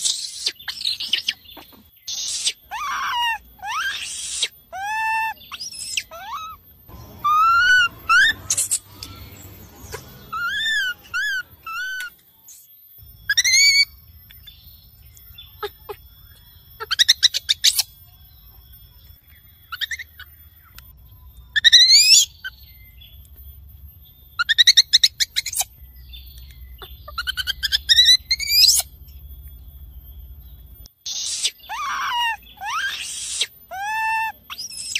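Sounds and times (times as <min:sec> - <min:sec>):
baby monkey screaming: 0:00.0 - 0:12.1, 0:13.3 - 0:14.0, 0:16.8 - 0:17.9, 0:19.7 - 0:20.4, 0:21.5 - 0:22.6, 0:24.4 - 0:25.7, 0:26.8 - 0:29.0, 0:31.0 - 0:34.9.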